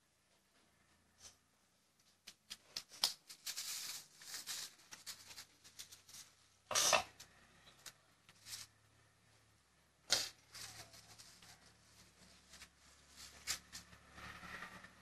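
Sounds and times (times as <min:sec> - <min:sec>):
light clicks and rustling scrapes: 0:02.0 - 0:08.8, 0:10.1 - 0:14.9.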